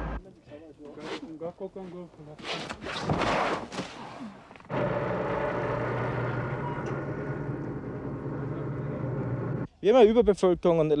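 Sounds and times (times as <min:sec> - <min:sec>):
truck engine running: 0:04.7 - 0:09.7.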